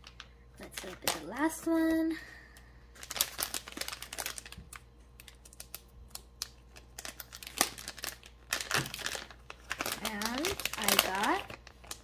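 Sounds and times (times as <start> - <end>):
plastic packet crackling: 0.0 - 1.9, 2.9 - 12.0.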